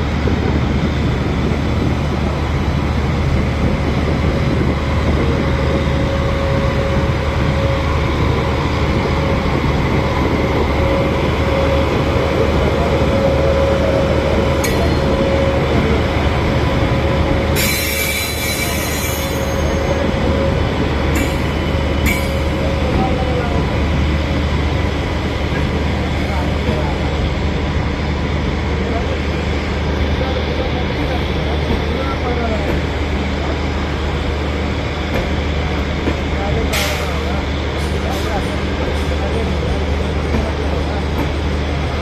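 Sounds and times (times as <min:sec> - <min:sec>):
train rolling on rails: 0:00.0 - 0:42.0.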